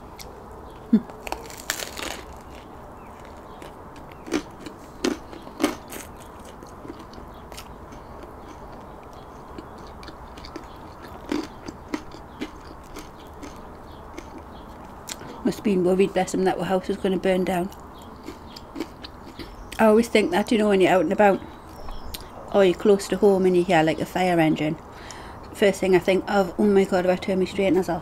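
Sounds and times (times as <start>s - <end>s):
chewing with crunches: 0.0s - 15.4s, 17.7s - 19.8s
biting into crunchy bread: 0.2s - 15.2s, 17.7s - 19.6s.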